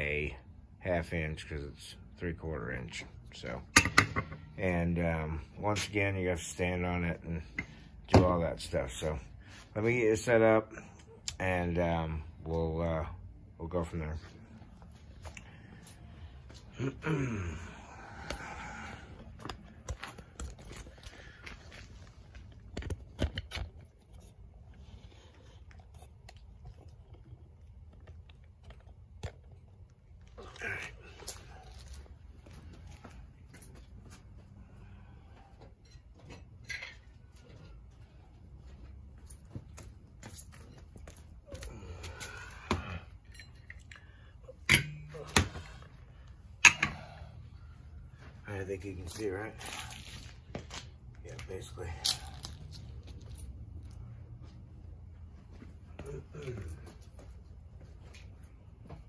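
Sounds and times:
metal parts clunking on concrete: 3.7 - 4.6, 46.6 - 47.2.

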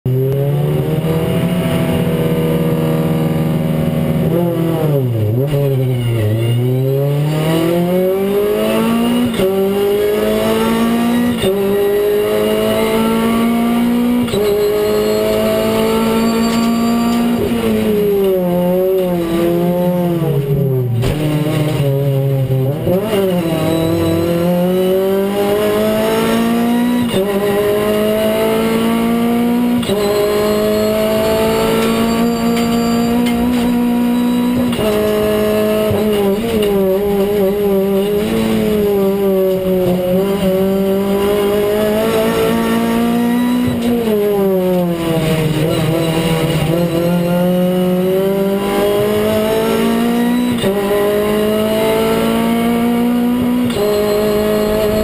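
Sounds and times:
race car engine revving: 0.1 - 55.0.

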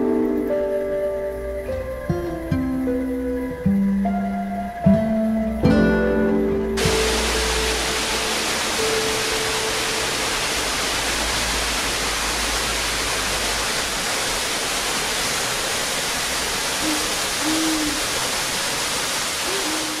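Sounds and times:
waterfall rushing into pool: 6.8 - 20.0.

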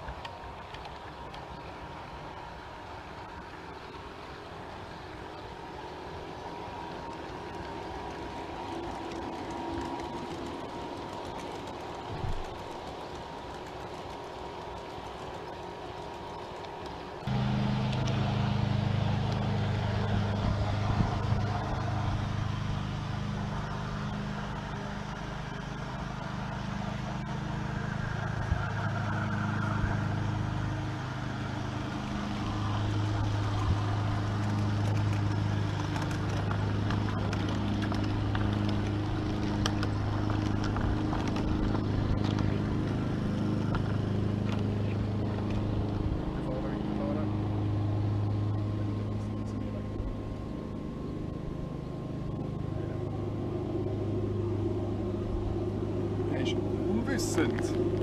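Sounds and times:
model train motor humming: 0.0 - 58.0
wheels clicking on rails: 0.0 - 58.0.

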